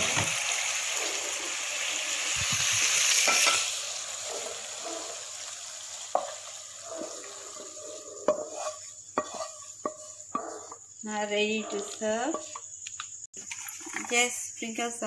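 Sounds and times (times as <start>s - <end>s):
sauce sizzling in a wok: 0.0s - 11.4s
wooden spatula scraping: 6.2s - 10.8s
spatula knocking on pan: 8.2s - 10.9s.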